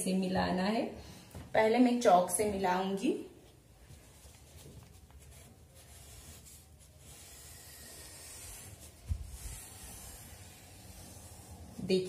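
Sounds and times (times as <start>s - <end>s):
paper rustling: 3.8s - 10.1s
chalk scratching on paper: 4.1s - 12.0s.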